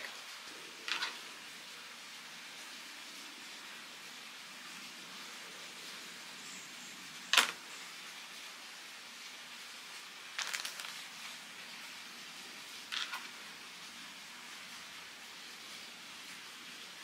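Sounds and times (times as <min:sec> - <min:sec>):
faint steady hiss: 0:00.0 - 0:17.0.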